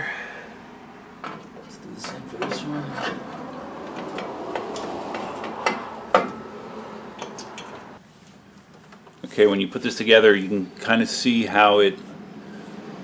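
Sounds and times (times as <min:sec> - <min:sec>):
metal brake parts clinking: 0:01.2 - 0:08.0.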